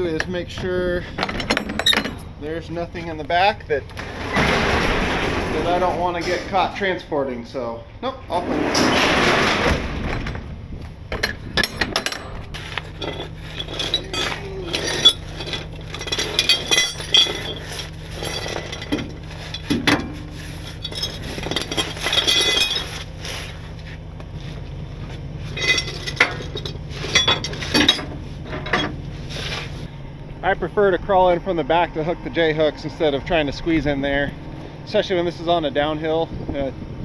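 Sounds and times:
steady low hum: 0.0s - 37.0s
metal chain clinking: 1.1s - 2.4s, 11.1s - 23.1s, 25.5s - 29.0s.

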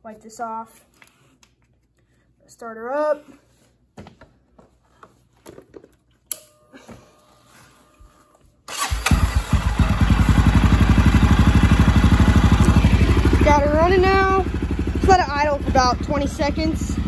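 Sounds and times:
motorbike engine starting and idling: 8.7s - 17.0s.

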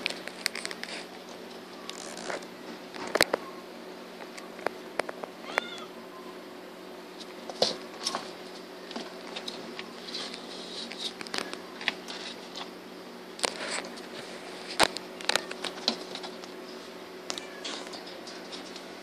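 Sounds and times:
kitten meowing: 5.4s - 5.9s.

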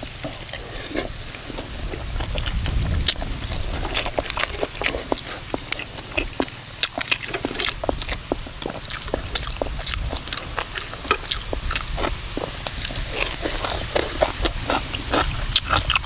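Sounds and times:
chewing and mouth smacks: 0.0s - 16.0s.

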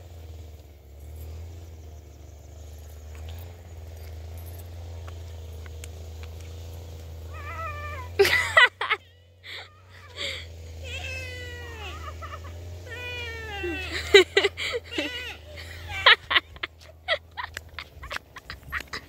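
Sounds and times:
animal crying out: 7.3s - 16.1s.

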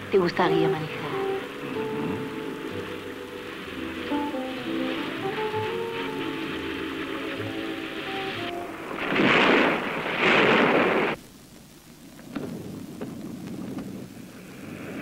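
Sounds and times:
surf breaking against rocks: 0.6s - 11.2s.

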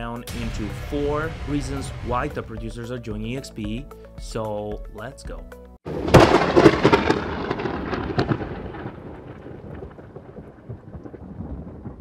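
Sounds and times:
thunder-like crash with crackles: 0.3s - 3.5s, 5.9s - 12.0s.

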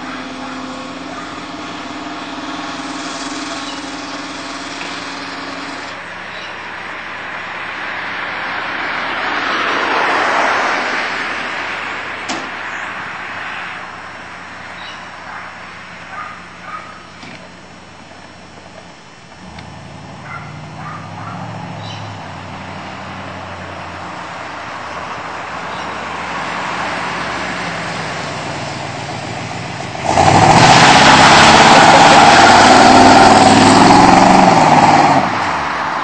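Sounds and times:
car engine running: 0.0s - 7.5s, 15.2s - 34.9s
loud rushing noise: 26.2s - 36.0s.

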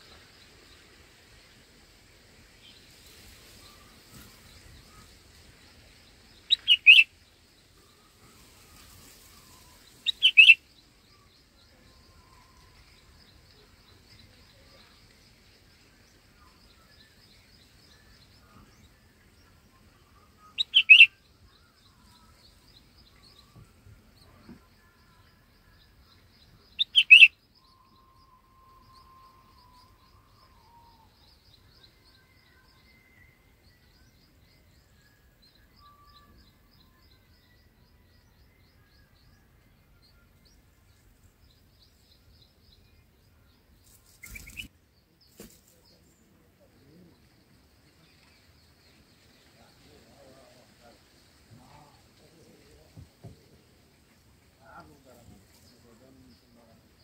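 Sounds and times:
rustle: 0.0s - 18.9s, 43.8s - 57.0s
faint scattered bird calls: 0.0s - 57.0s
bulbuls chirping: 6.3s - 7.2s, 8.8s - 11.6s, 20.5s - 21.2s, 26.7s - 27.4s, 43.6s - 52.0s.

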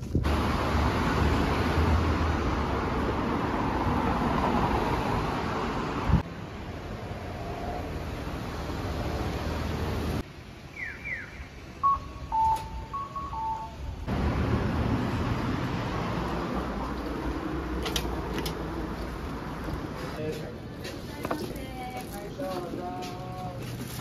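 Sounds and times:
outdoor noise rush: 0.0s - 24.0s
two-note falling beep: 11.8s - 14.0s.

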